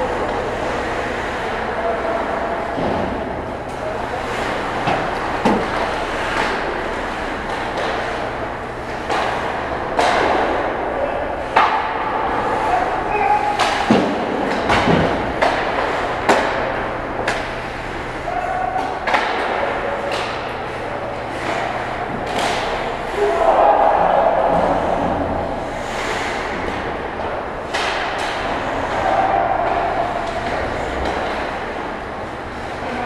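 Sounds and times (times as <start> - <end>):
hockey sticks clacking on puck: 3.7 - 10.7, 11.4 - 32.0
players calling out: 7.3 - 13.9, 16.4 - 32.1.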